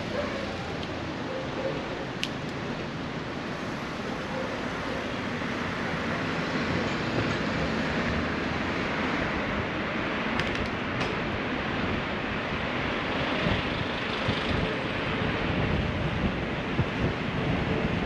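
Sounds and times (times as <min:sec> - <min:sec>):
cars in slow traffic: 0:00.0 - 0:18.0
wind on microphone: 0:13.2 - 0:18.0.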